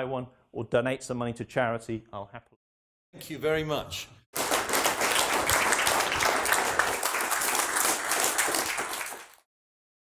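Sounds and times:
audience applauding: 4.4 - 9.5.

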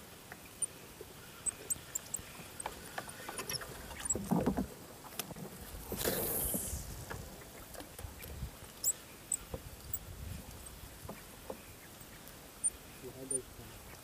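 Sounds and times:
boat handling clicks and knocks: 2.6 - 5.5.

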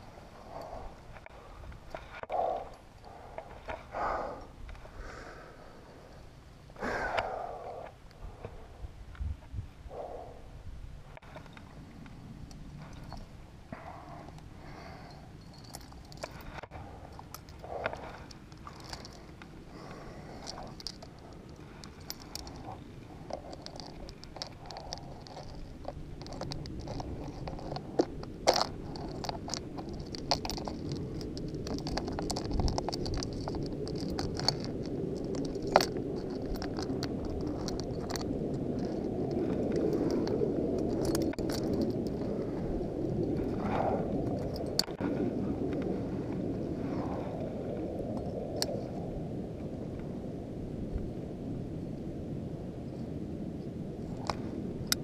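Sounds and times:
climbing gear clinking: 0.0 - 4.9, 11.1 - 46.5, 54.0 - 55.0
wind rumbling on microphone: 0.0 - 55.0
scraping against rock: 15.6 - 45.4.

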